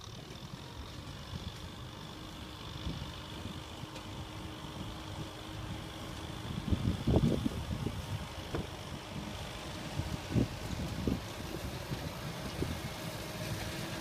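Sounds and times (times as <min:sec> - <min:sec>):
tractor engine running: 0:00.0 - 0:14.0
wind gust on microphone: 0:06.5 - 0:13.2.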